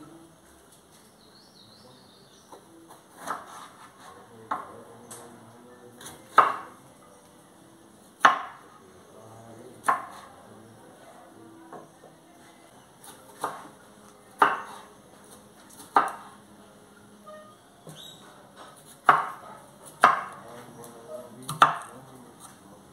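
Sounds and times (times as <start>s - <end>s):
knife cutting on wooden board: 3.1s - 4.6s.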